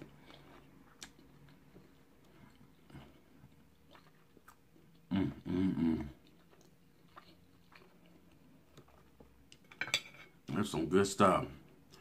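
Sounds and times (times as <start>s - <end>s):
man chewing: 0.0s - 9.6s
man humming mmm: 5.1s - 6.2s.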